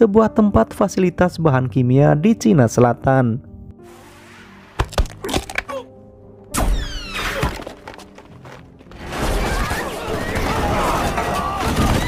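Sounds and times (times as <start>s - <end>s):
film music: 0.0s - 12.0s.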